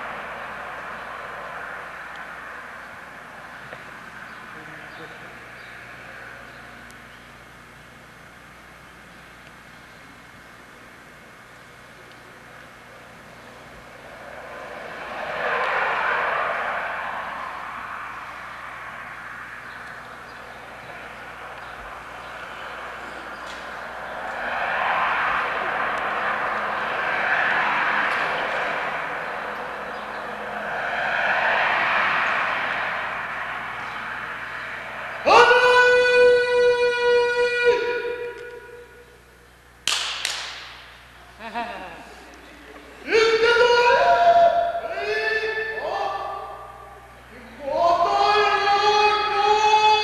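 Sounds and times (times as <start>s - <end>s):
rushing noise drone: 0.0s - 6.9s, 11.3s - 39.5s.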